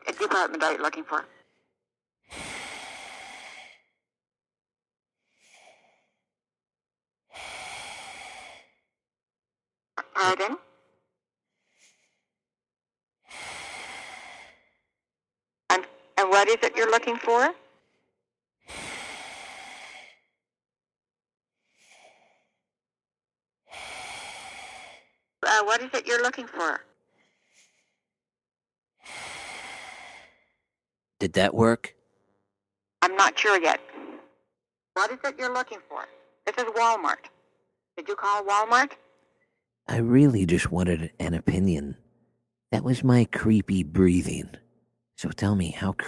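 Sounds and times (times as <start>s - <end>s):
man breathing heavily into telephone: 2.3s - 4.0s, 5.3s - 6.2s, 7.3s - 8.9s, 13.3s - 14.8s, 23.7s - 25.2s.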